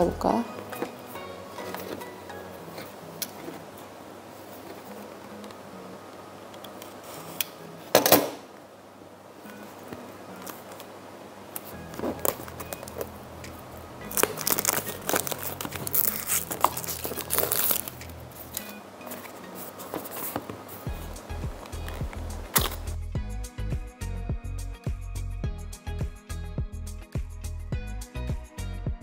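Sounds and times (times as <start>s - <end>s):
plastic shrink-wrap crinkling: 11.6s - 13.1s, 14.0s - 20.8s
sharp crackle: 14.1s - 18.2s.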